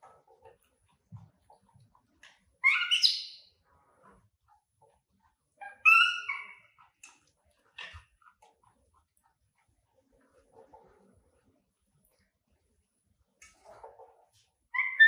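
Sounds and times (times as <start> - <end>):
baby monkey high-pitched calls: 2.6 - 3.3, 5.6 - 6.8, 14.7 - 15.0.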